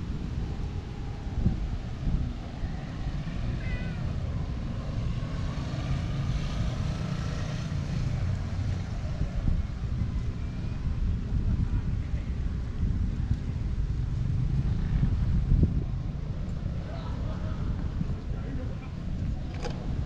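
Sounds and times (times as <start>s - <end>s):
distant traffic: 0.0s - 20.0s
wind: 0.0s - 20.0s
faint cat meow: 3.5s - 4.2s.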